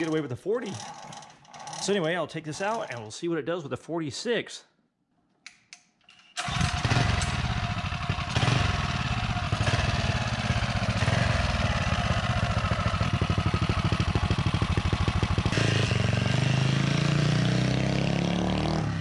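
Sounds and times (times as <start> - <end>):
minibike engine running: 6.4 - 17.4.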